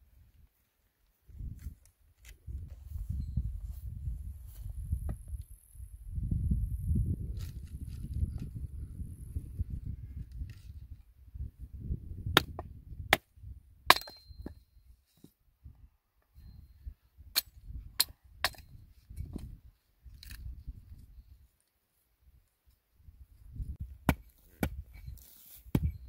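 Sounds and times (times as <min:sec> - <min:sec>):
hatchet cracking wood: 0:12.4 - 0:13.3, 0:24.0 - 0:24.9.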